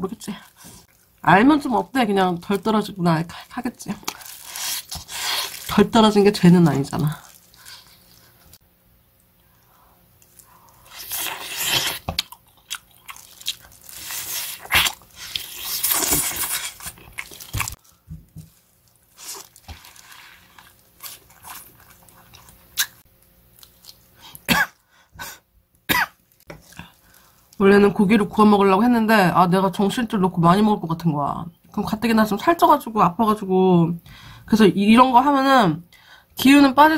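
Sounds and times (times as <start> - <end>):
plastic gloves rustling: 0.0 - 8.6, 13.0 - 22.8, 26.2 - 28.4
person chewing: 4.0 - 5.7, 9.2 - 24.5
person coughing: 24.5 - 25.3, 25.9 - 26.2.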